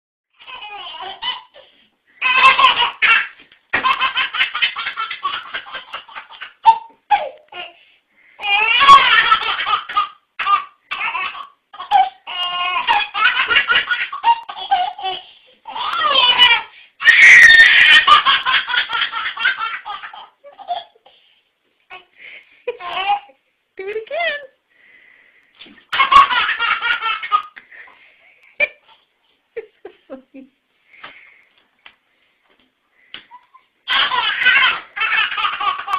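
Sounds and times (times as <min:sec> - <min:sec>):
baby laughing: 0:00.4 - 0:07.8, 0:08.4 - 0:21.1, 0:22.7 - 0:23.4, 0:25.6 - 0:27.9, 0:33.2 - 0:35.9.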